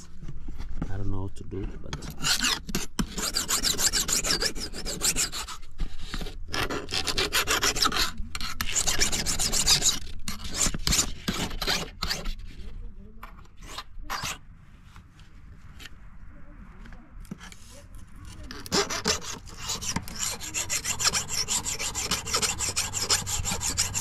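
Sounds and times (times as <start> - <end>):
metal file rasping on blade: 1.9 - 12.4, 13.6 - 14.4, 18.3 - 24.0.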